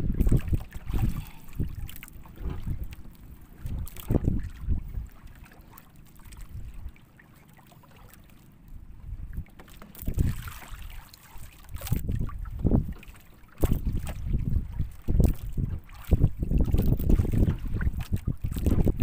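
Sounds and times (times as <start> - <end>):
wind buffeting microphone: 0.0 - 5.4, 6.3 - 7.0, 8.8 - 10.5, 11.7 - 19.0
water washing around hull: 0.0 - 19.0.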